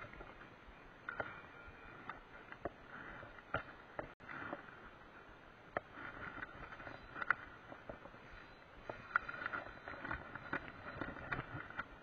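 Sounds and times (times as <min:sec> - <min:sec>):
reel and rod clicks: 0:05.7 - 0:12.0.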